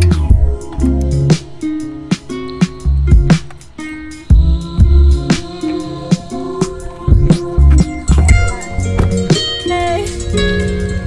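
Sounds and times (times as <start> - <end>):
bass drum thumps: 0.0 - 0.9, 2.9 - 3.5, 4.3 - 5.3, 7.1 - 9.3
music with steady beat: 0.0 - 11.0
snare hits: 1.3 - 3.7.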